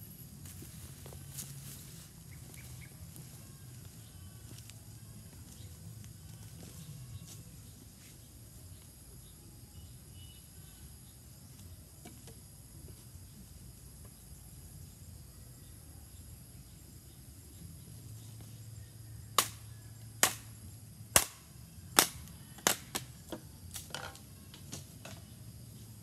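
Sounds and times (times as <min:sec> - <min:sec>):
bamboo popping and cracking in fire: 0:19.3 - 0:25.3.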